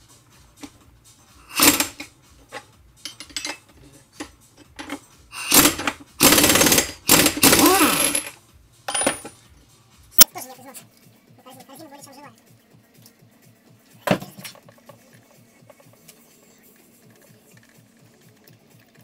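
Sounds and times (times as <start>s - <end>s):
impact wrench hammering: 1.5s - 2.1s, 4.8s - 8.3s, 8.9s - 9.4s.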